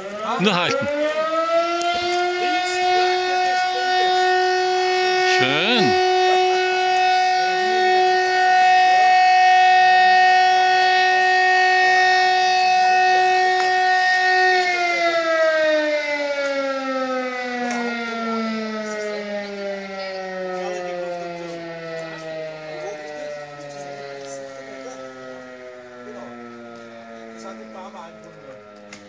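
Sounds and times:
siren winding down: 0:00.4 - 0:15.7.

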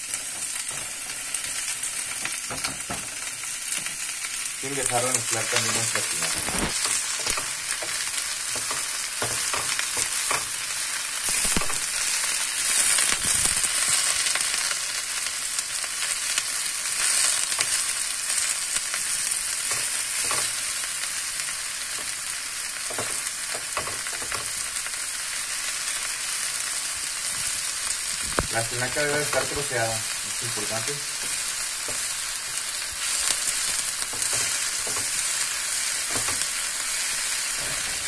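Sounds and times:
vegetables sizzling in hot oil: 0:00.0 - 0:38.0.

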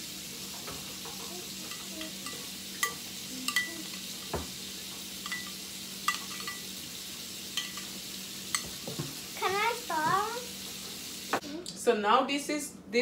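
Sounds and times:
spoon stirring in glass bowl: 0:01.0 - 0:04.3, 0:05.2 - 0:06.7, 0:07.5 - 0:08.8
spoon clinking against glass: 0:01.7 - 0:04.0, 0:05.2 - 0:06.7, 0:07.6 - 0:07.9.

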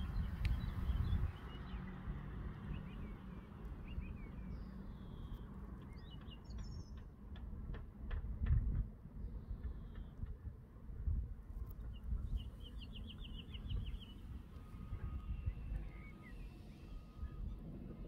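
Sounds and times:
small birds chirping: 0:00.0 - 0:07.1, 0:11.6 - 0:18.0
wind rumble on microphone: 0:00.0 - 0:18.0.

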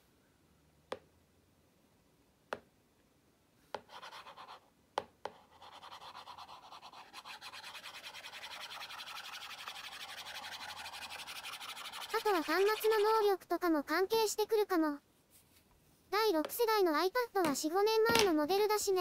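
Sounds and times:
stylus scratching across glass: 0:05.5 - 0:13.2.

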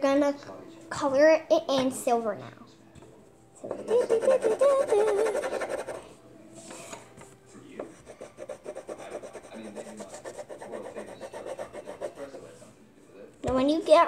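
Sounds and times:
child's voice: 0:03.9 - 0:05.5, 0:13.5 - 0:14.0
pen scribbling on paper: 0:03.9 - 0:06.0, 0:07.9 - 0:12.4.

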